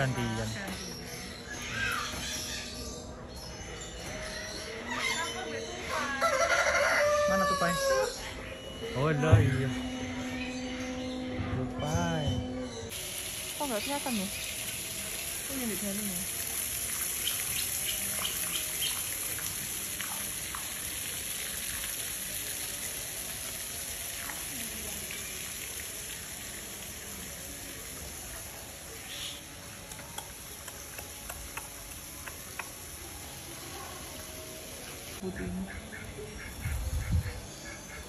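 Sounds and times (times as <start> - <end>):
hiss of water: 12.9 - 35.7.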